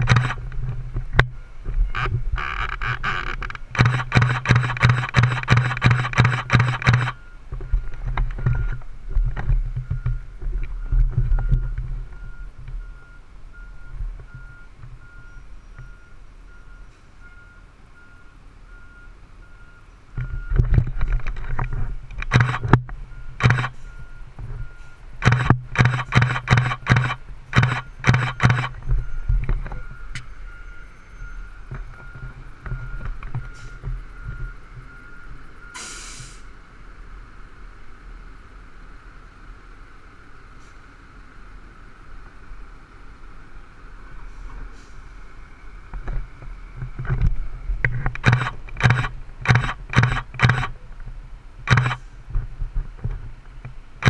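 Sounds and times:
reversing alarm beeping: 0.0s - 0.4s, 3.7s - 8.8s, 9.8s - 20.6s, 21.6s - 36.3s, 48.2s - 50.8s, 51.7s - 52.0s
fire engine running: 3.4s - 54.0s.

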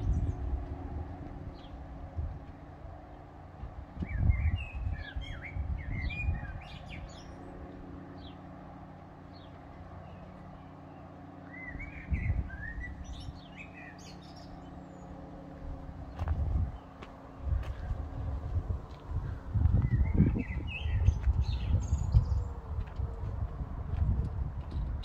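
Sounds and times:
steady low hum: 0.0s - 25.0s
small birds chirping: 4.0s - 8.4s, 9.3s - 18.4s, 19.0s - 22.8s
low rumbles: 11.5s - 25.0s.

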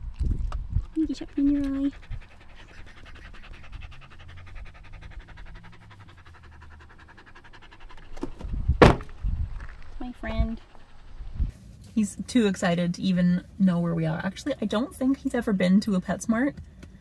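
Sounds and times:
dog panting: 0.6s - 16.1s
sharp knocks: 8.2s - 9.1s.

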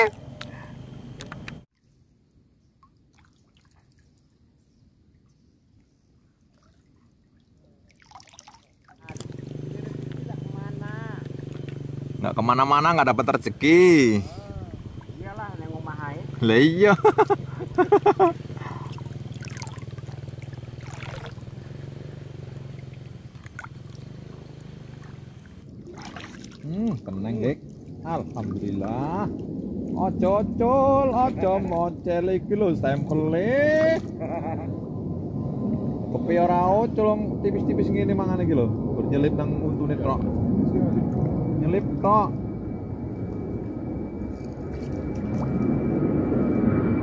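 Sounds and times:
water splashing: 2.8s - 4.4s, 6.4s - 10.5s, 18.8s - 21.6s, 22.5s - 32.2s, 32.9s - 34.2s
small engine humming: 9.1s - 12.8s, 13.8s - 25.8s.

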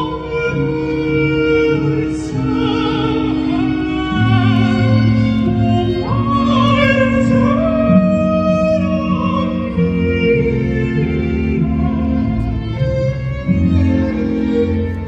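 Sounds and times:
operatic voice singing: 0.0s - 14.9s
strings: 0.0s - 15.0s.

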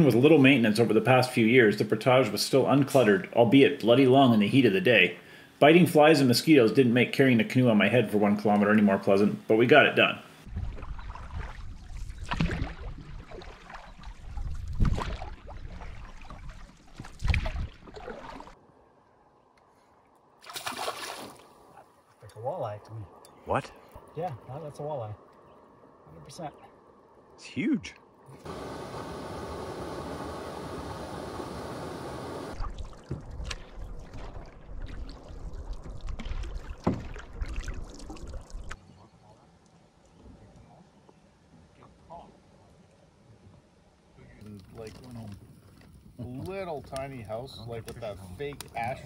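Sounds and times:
water splashing along canoe: 10.5s - 18.6s, 20.4s - 22.2s, 28.4s - 38.9s
steady hiss: 28.3s - 32.6s.

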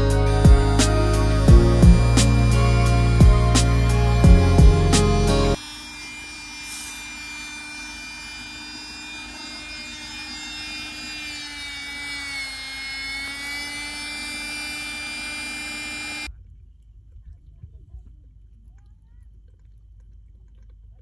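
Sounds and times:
electric air pump whining: 0.0s - 16.3s.

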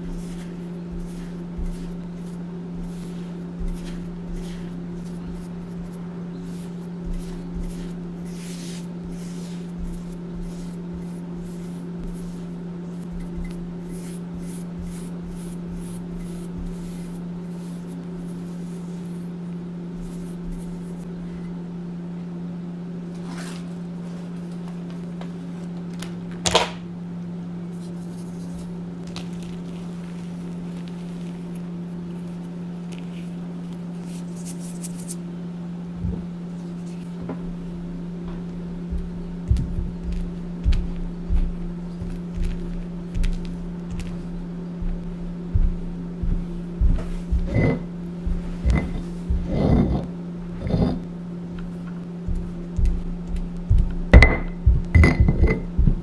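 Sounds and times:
brush sweeping on stone: 0.0s - 19.3s
steady low hum: 0.0s - 56.0s.

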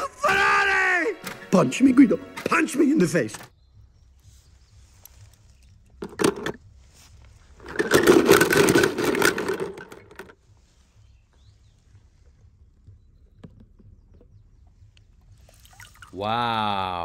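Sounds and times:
toy cars rattling in plastic tub: 6.0s - 6.6s, 7.6s - 10.4s.

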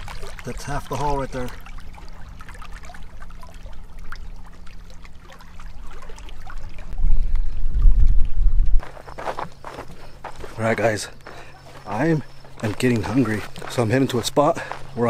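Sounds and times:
water lapping against rocks: 0.0s - 8.9s
wind buffeting microphone: 6.7s - 8.9s.

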